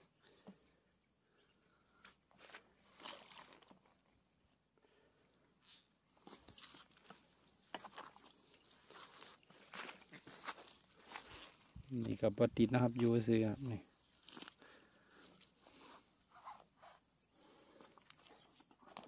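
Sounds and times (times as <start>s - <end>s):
insect trill: 0.0s - 19.0s
soft footsteps: 6.2s - 12.2s
rustling through vegetation: 6.2s - 19.0s.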